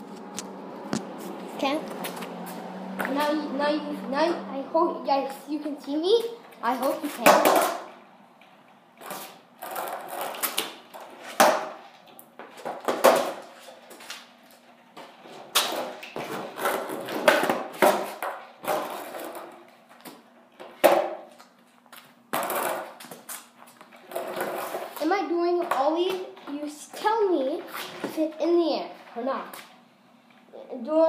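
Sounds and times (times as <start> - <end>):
skateboard clattering: 6.8 - 7.9, 9.0 - 11.8, 12.5 - 13.5, 15.5 - 19.6, 20.6 - 21.3, 22.3 - 23.0
skateboard wheels rolling: 9.0 - 11.8, 15.0 - 21.2, 22.3 - 25.8.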